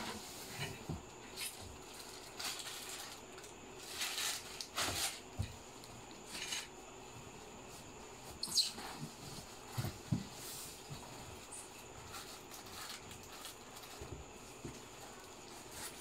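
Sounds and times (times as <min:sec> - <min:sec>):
bubble wrap rustling and crinkling: 0:01.3 - 0:05.5, 0:07.7 - 0:16.0.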